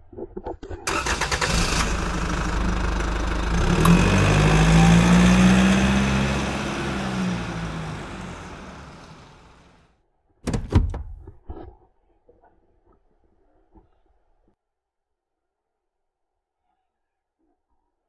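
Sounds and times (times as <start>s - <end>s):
vehicle engine revving: 0.9s - 9.7s.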